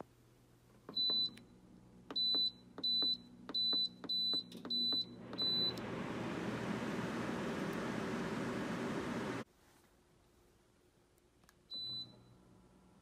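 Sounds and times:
air conditioner fan rushing: 5.2 - 9.4.

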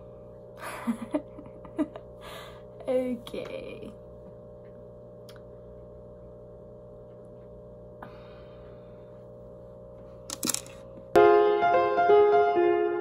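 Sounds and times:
low electrical hum: 0.0 - 13.0
music with held piano notes: 11.2 - 13.0.

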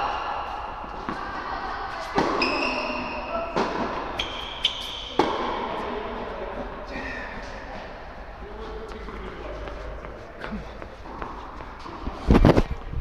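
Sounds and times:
tennis ball hit by rackets: 0.8 - 1.5, 2.1 - 2.9, 3.5 - 5.8
shoes squeaking on court: 0.8 - 5.8.

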